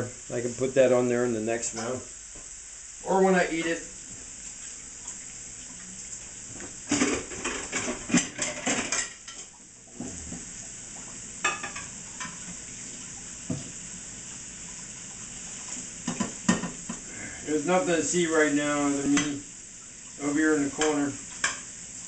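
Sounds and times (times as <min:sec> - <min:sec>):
steak sizzling in a pan: 0:00.0 - 0:22.0
pans and utensils clattering: 0:06.9 - 0:09.5, 0:11.4 - 0:12.5, 0:16.0 - 0:17.0.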